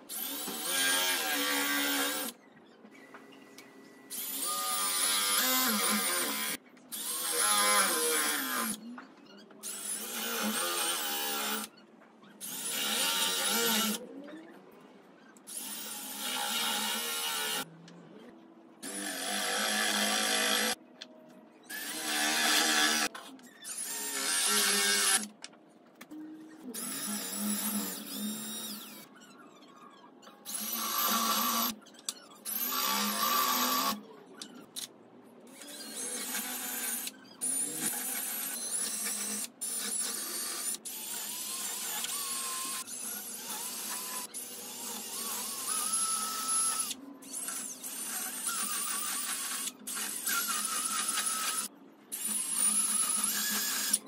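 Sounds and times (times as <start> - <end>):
cordless drill drilling into wood: 23.7 - 25.3, 30.5 - 31.8, 35.8 - 54.0.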